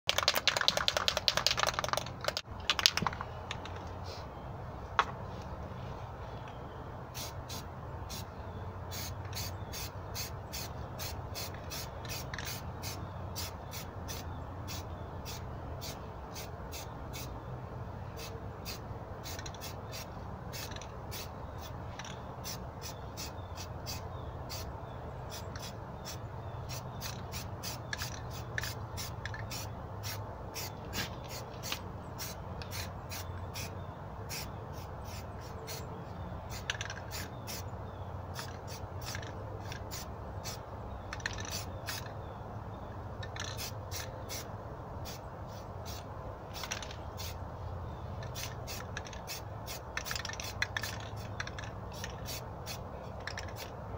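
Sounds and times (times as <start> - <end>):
sharp repeating clicks: 0.1 - 3.8.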